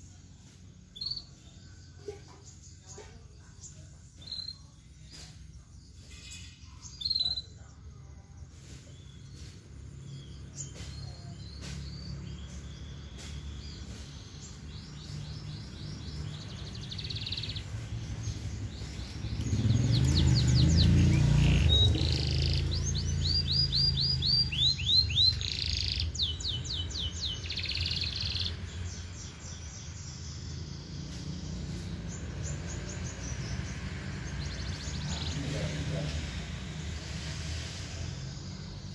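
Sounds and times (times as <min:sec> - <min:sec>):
canary trilling song: 0:00.0 - 0:38.9
motorcycle engine passing: 0:11.6 - 0:38.9.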